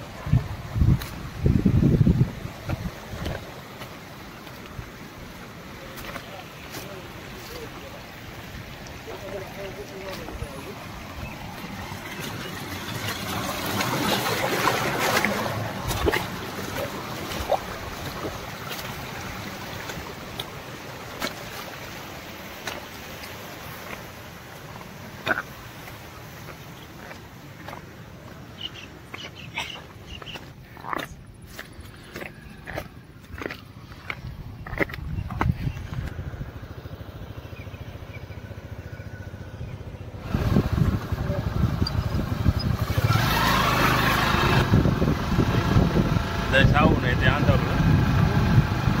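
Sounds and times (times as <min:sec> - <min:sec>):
motorcycle engine rumbling: 0:00.0 - 0:30.4, 0:32.6 - 0:49.0
stream water rushing over rocks: 0:00.0 - 0:35.1.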